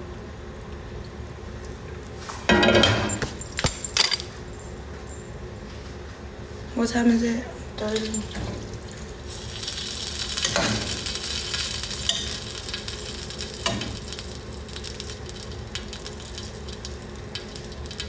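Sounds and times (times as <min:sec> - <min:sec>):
food sizzling in saucepan: 0:09.0 - 0:18.0.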